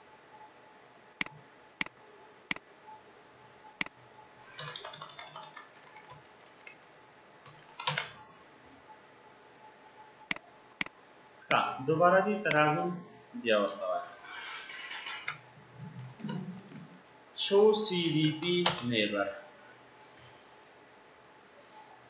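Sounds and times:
keyboard typing: 4.6s - 6.8s.

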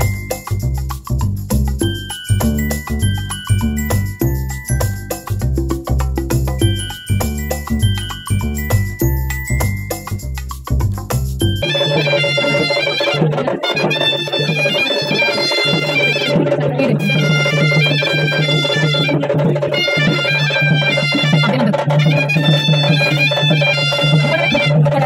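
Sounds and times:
light percussion: 0.0s - 25.0s
reedy wind instrument melody: 11.6s - 25.0s.

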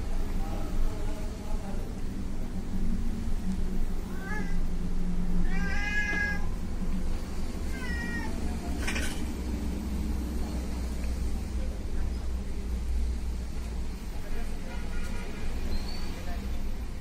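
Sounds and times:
cat mewing: 4.0s - 4.7s, 5.4s - 6.6s, 7.6s - 8.5s.

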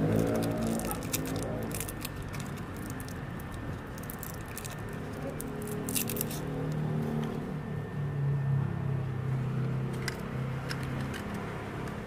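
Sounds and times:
foil wrapper crinkling: 0.0s - 6.5s.

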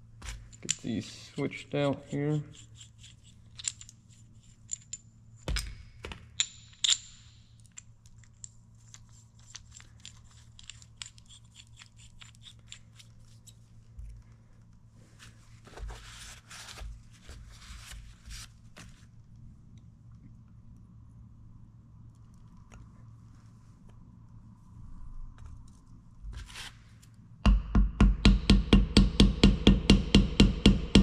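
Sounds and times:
rustling and scraping: 8.1s - 19.2s, 22.4s - 27.2s.

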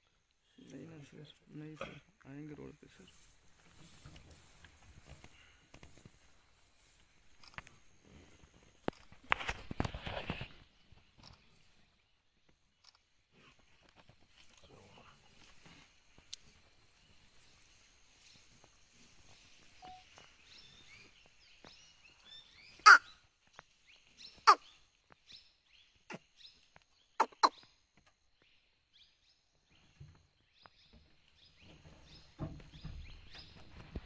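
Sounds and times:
faint bird calls: 22.4s - 23.2s, 24.3s - 24.8s, 27.1s - 27.7s.

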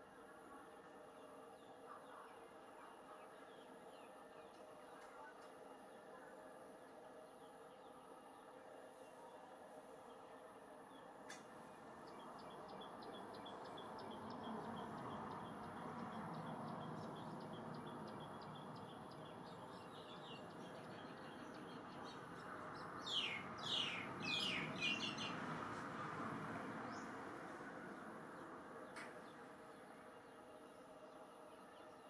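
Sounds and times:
birds chirping: 10.9s - 25.4s
downward-sweeping bird calls: 23.0s - 25.4s.

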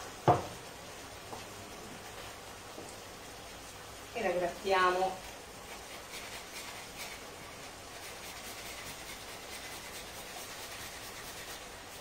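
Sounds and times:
nutmeg rasping on grater: 5.6s - 12.0s.

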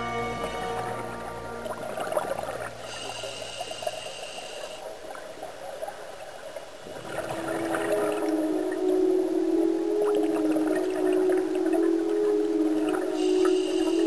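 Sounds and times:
high steady tone: 0.0s - 4.1s
low steady tone: 0.0s - 5.0s, 7.2s - 14.0s
underwater bubbles gurgling: 0.4s - 14.0s.

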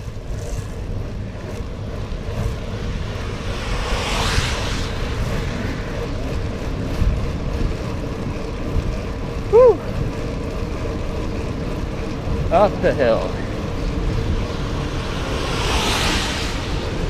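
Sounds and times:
bicycle tyres rolling on wet asphalt: 0.0s - 17.0s
wind buffeting microphone: 0.0s - 17.0s
short rising-then-falling tone: 2.7s - 6.6s, 14.4s - 17.0s
car tyres hissing past on wet road: 3.0s - 5.9s, 14.9s - 17.0s.

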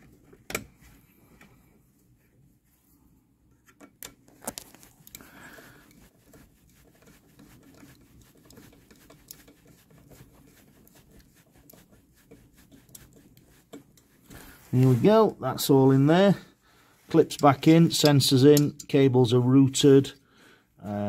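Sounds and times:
light scraping and rustling: 4.4s - 15.8s.

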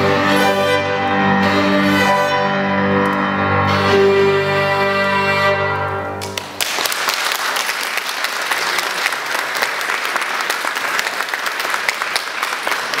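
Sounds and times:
violin and piano chord: 0.0s - 6.2s
audience applause: 6.2s - 13.0s.

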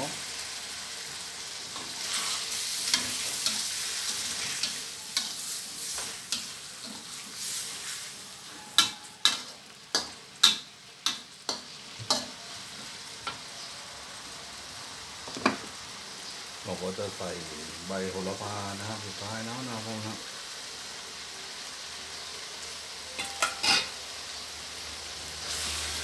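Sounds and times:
food sizzling in a wok: 0.0s - 26.0s
metal spatula scraping wok: 0.4s - 13.6s, 23.1s - 24.1s
spatula clinking on wok: 8.6s - 12.4s, 23.1s - 24.0s.

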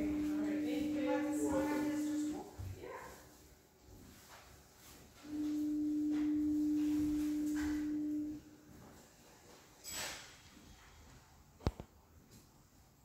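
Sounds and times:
steady low pure tone: 0.0s - 2.6s, 5.2s - 9.0s.

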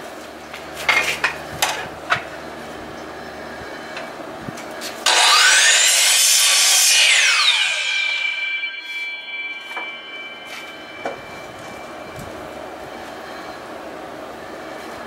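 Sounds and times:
miter saw cutting wood: 5.0s - 11.0s.

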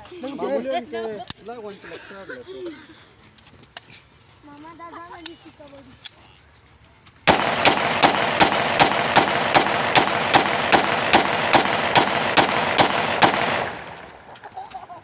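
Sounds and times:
pistol shots: 7.3s - 14.4s.

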